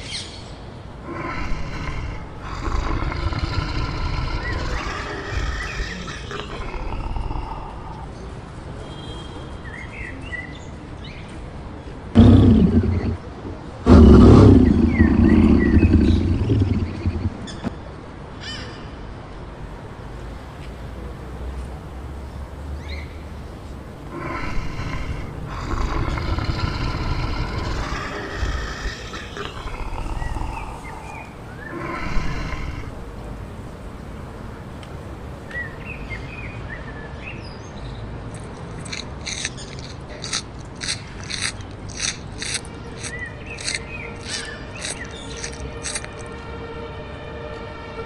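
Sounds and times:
lynx yowling: 0:01.1 - 0:08.1, 0:24.1 - 0:33.0
steady low rumble: 0:12.2 - 0:17.8, 0:23.2 - 0:36.0.

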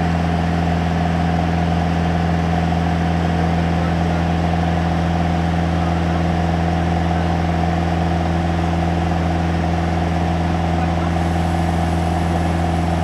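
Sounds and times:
aircraft engine droning in cabin: 0:00.0 - 0:13.0.

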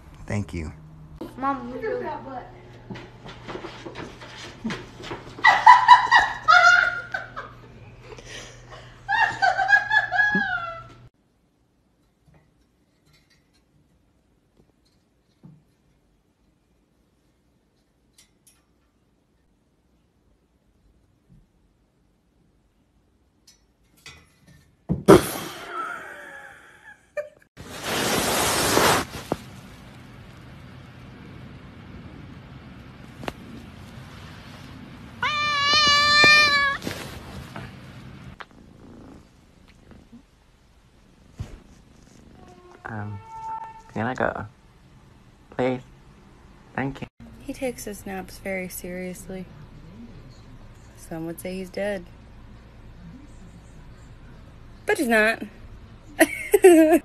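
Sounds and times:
paper bag rustling: 0:27.6 - 0:30.0, 0:35.9 - 0:38.0.

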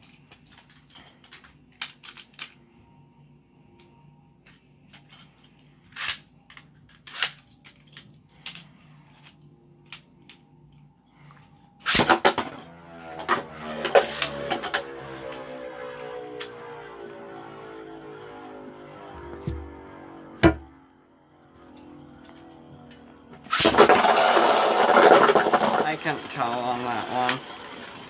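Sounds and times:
launcher rip: 0:11.8 - 0:12.5, 0:23.5 - 0:24.0
spinning tops whirring and clattering: 0:11.8 - 0:16.6, 0:22.9 - 0:28.0.

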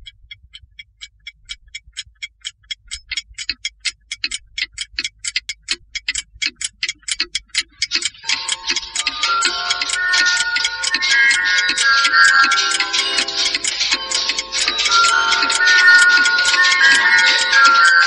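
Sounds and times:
clockwork ticking: 0:00.0 - 0:18.0
music: 0:08.2 - 0:18.0.

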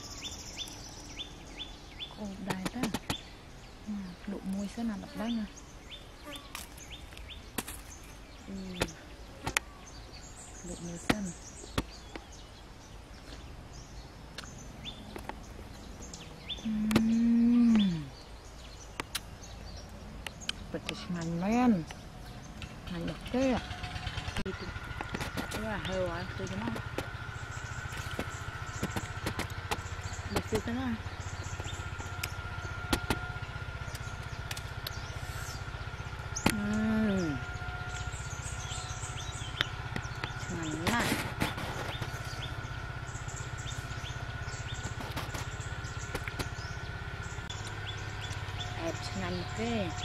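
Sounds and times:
birds chirping: 0:00.0 - 0:50.0
engine throbbing: 0:00.0 - 0:50.0
woman humming mmm: 0:16.6 - 0:18.2.

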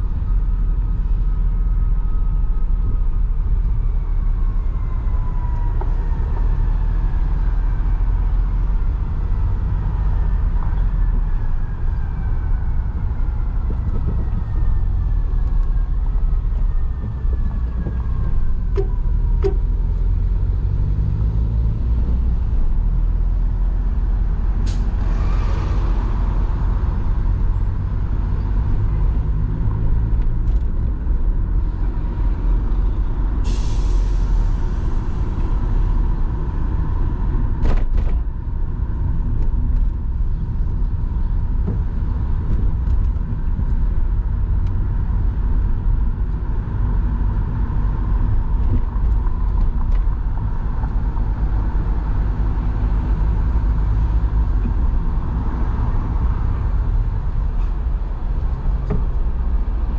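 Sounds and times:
traffic rumble and road noise: 0:00.0 - 0:59.9
bus air brakes hissing: 0:33.3 - 0:35.6.

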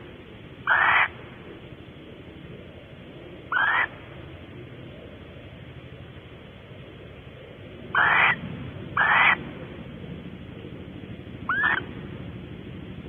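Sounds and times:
barn owl calling: 0:00.0 - 0:09.8, 0:11.4 - 0:11.9.

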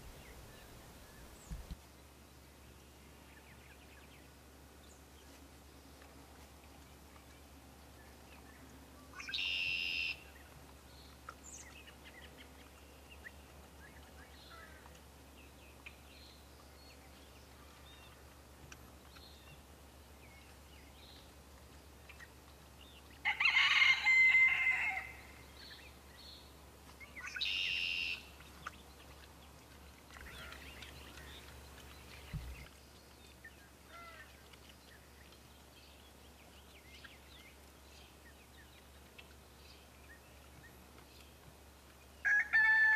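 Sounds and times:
small birds chirping: 0:00.0 - 0:01.8, 0:08.0 - 0:23.2, 0:25.2 - 0:42.3
rooster crowing: 0:23.2 - 0:25.2, 0:42.3 - 0:42.9.

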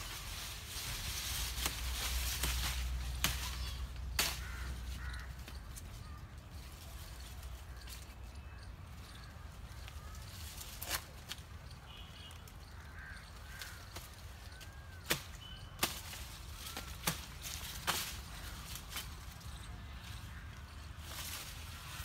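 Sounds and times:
twigs and branches snapping: 0:01.4 - 0:05.9, 0:12.6 - 0:19.3
small birds chirping: 0:02.0 - 0:22.0.

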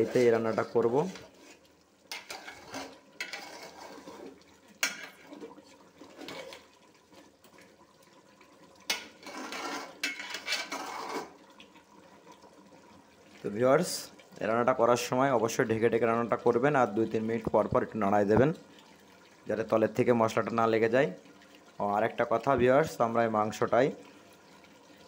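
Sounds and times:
spatula scraping metal pot: 0:00.0 - 0:06.7, 0:08.9 - 0:11.4.

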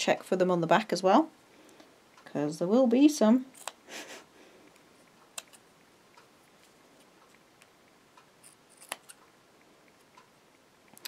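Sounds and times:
scissors snipping: 0:08.7 - 0:09.2.

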